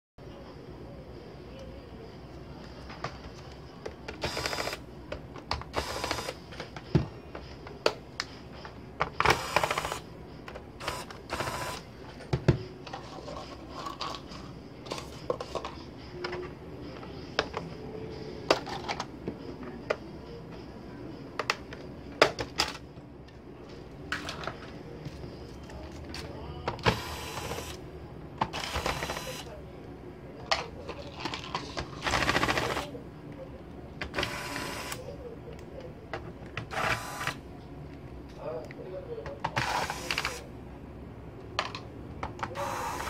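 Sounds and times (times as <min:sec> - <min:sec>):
electric screwdriver whirring: 0:04.2 - 0:04.8, 0:05.7 - 0:06.4, 0:09.2 - 0:10.0, 0:10.8 - 0:11.8, 0:26.9 - 0:27.8, 0:28.6 - 0:29.4, 0:34.2 - 0:35.0, 0:36.7 - 0:37.4, 0:42.6 - 0:43.0.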